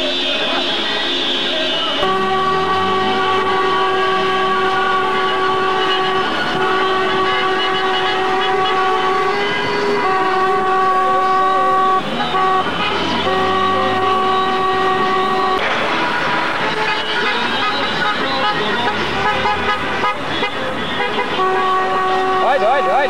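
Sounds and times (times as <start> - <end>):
car horns blasting: 0.0 - 23.0.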